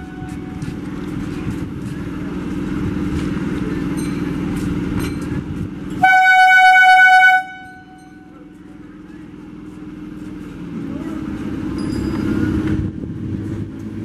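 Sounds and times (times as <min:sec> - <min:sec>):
train horn blast: 0:00.0 - 0:00.6, 0:06.0 - 0:08.2
train rumbling: 0:00.0 - 0:14.0.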